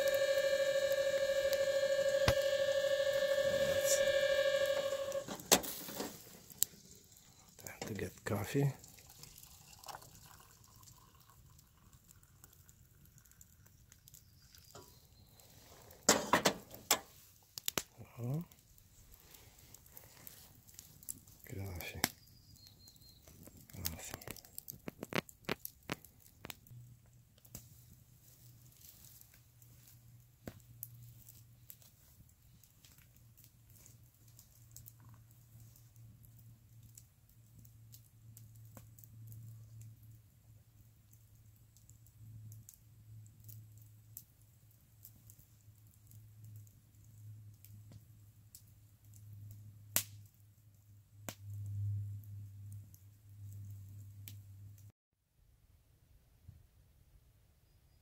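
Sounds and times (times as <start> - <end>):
low hum: 0.0 - 5.5
campfire crackling: 0.0 - 54.9
kettle clanking on metal grate: 16.1 - 17.0.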